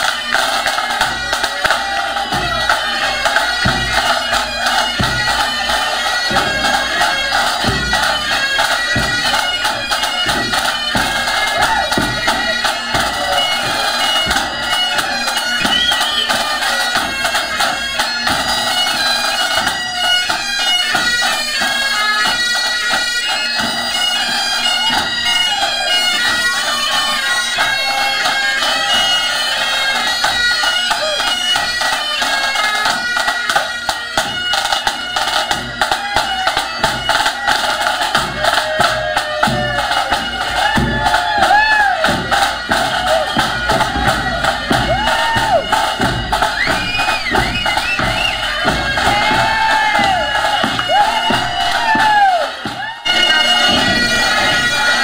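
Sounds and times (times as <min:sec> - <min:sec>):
bagpipes playing: 0:00.0 - 0:55.0.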